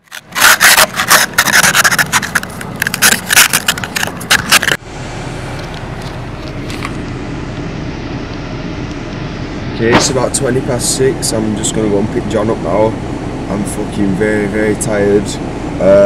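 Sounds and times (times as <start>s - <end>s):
rough scraping strokes: 0.0s - 4.8s
steady low rumble: 0.0s - 16.0s.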